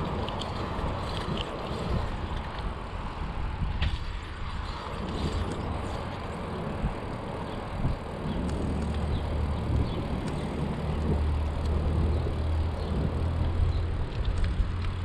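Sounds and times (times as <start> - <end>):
bicycle riding rumble and hiss: 0.0 - 15.0
deep hum: 4.9 - 14.8
light ticks: 12.8 - 15.0.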